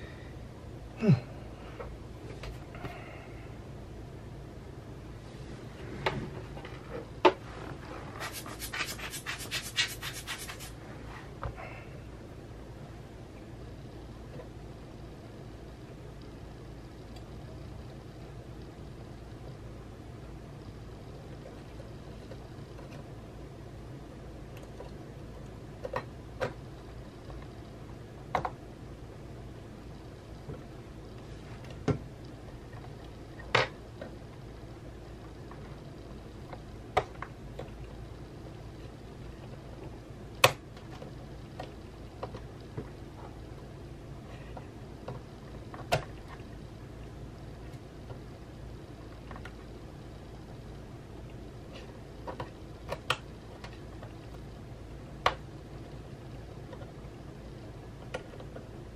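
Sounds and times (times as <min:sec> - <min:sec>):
steady low hum: 0:00.0 - 0:58.9
scratchy strokes: 0:07.5 - 0:11.2.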